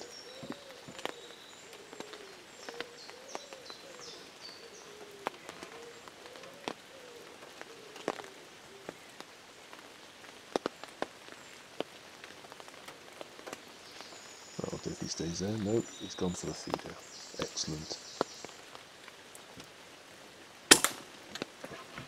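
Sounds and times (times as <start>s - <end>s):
bird singing falling notes: 0.0s - 4.6s, 13.9s - 18.6s
rain patter: 0.0s - 22.0s
raindrops striking a surface: 0.0s - 22.0s.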